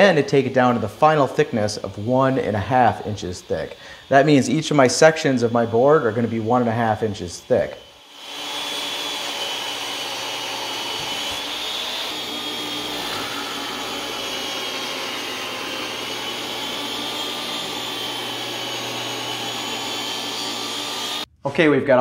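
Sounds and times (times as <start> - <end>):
table saw ripping wood: 6.9 - 21.3.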